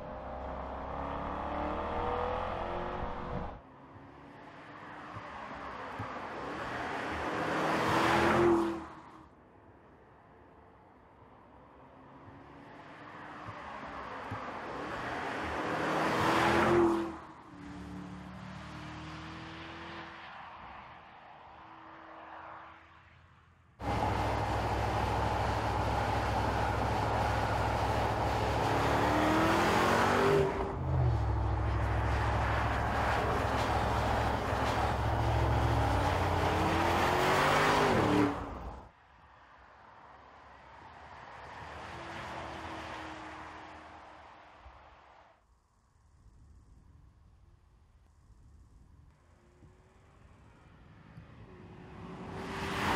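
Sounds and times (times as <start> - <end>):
car engine passing by: 23.8 - 38.9, 50.0 - 52.9.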